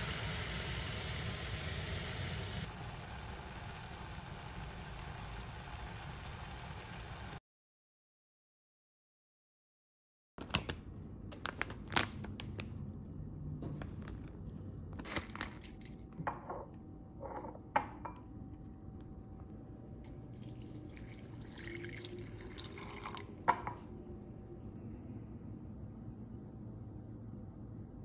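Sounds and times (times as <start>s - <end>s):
water running into bowl: 20.1s - 23.9s.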